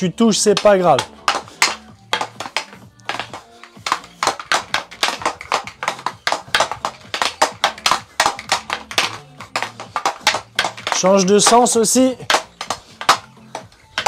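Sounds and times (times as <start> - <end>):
faint background music: 0.0 - 14.0
hockey stick clacking puck: 0.4 - 14.0.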